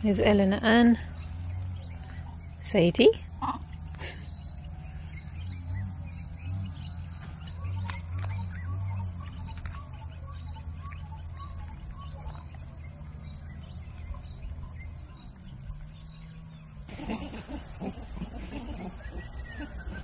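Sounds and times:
low hooting calls: 3.2 - 20.0
monkey calls: 3.3 - 4.3, 16.9 - 20.0.

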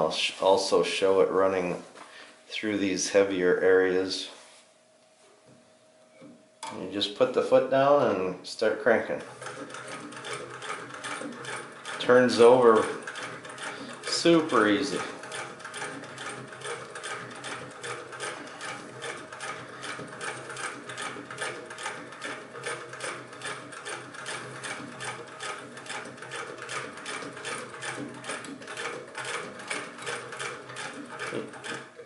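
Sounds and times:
sewing machine stitching clatter: 9.2 - 32.0.

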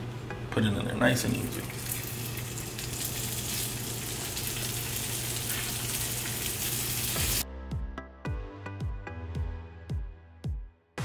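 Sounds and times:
food sizzling in oil: 1.7 - 7.4.

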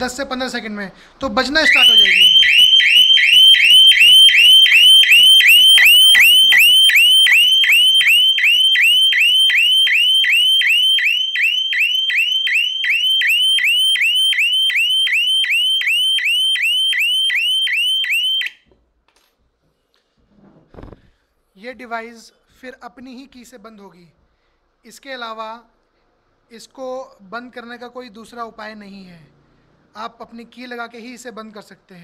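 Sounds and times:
electronic alarm siren whooping: 1.6 - 18.6.

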